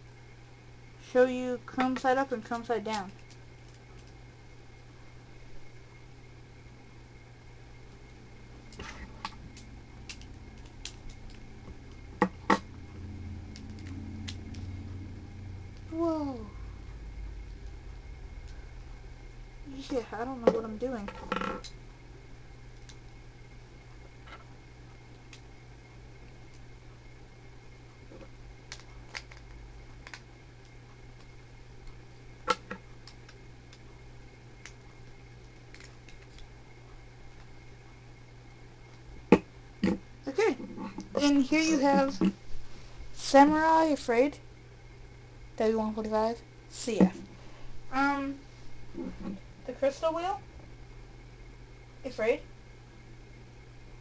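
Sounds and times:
steady low hum: 0.0s - 54.0s
small parts clicking together: 8.7s - 11.4s.

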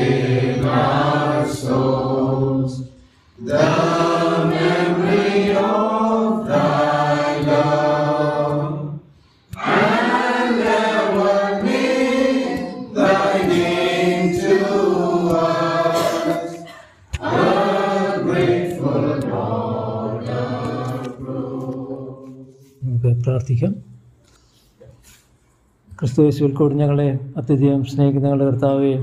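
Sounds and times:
congregation singing a hymn: 0.0s - 22.8s.

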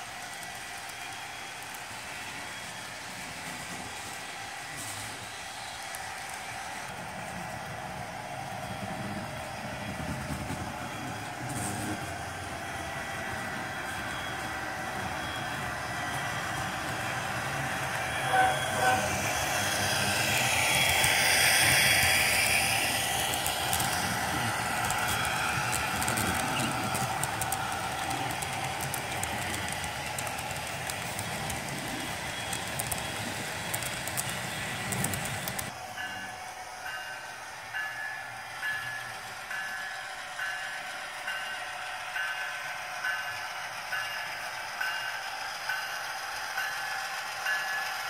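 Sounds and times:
model train diesel engine sound: 0.0s - 48.0s
wheels clicking over rail joints: 8.8s - 36.3s
train horn toots: 17.9s - 20.2s.

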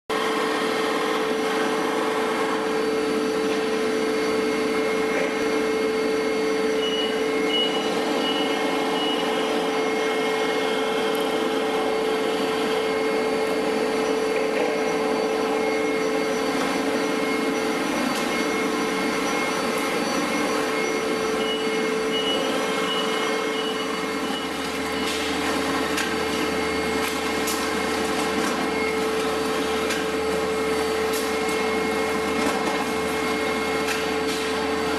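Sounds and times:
machinery mechanical drone: 0.1s - 34.9s.

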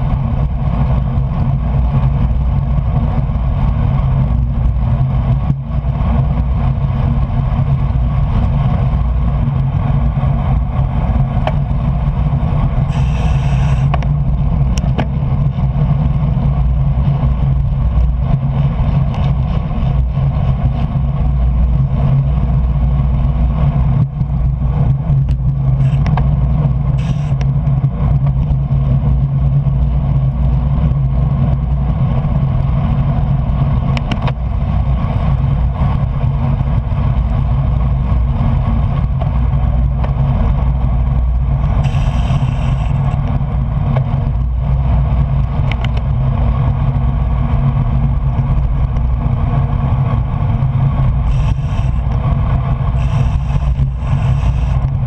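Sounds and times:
wind and road noise from bicycle: 0.0s - 55.0s
brief hiss: 12.9s - 13.9s.

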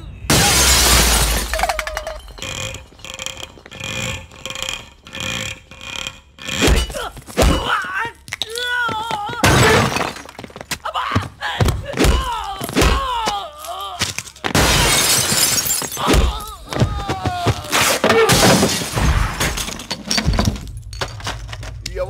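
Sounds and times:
crashing and breaking: 0.3s - 3.8s, 9.2s - 10.8s, 12.6s - 21.9s
men crying out in pain: 10.9s - 14.5s, 16.0s - 18.0s.

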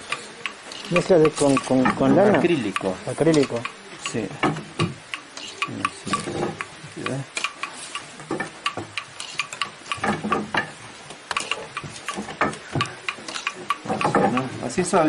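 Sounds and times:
wooden loom clicking and knocking: 0.0s - 15.0s.

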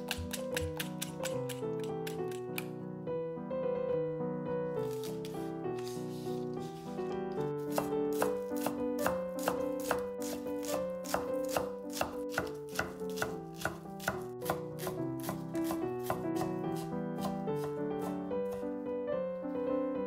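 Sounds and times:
knife chopping on cutting board: 0.0s - 2.7s, 7.4s - 18.7s
soft background music: 0.0s - 20.0s.

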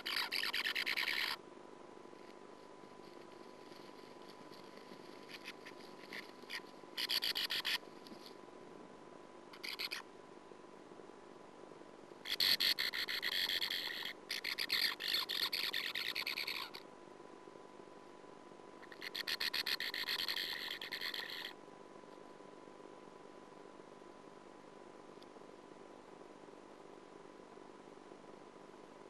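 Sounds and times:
bird chattering calls: 0.0s - 1.4s, 5.2s - 7.8s, 9.6s - 10.0s, 12.2s - 16.8s, 18.8s - 21.6s.

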